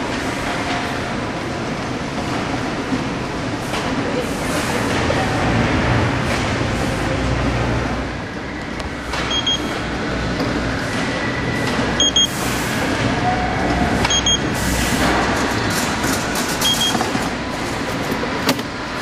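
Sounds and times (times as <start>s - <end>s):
conveyor machinery running: 0.0s - 19.0s
electronic double beeps: 9.3s - 9.7s, 12.0s - 12.4s, 14.0s - 14.5s, 16.6s - 17.0s.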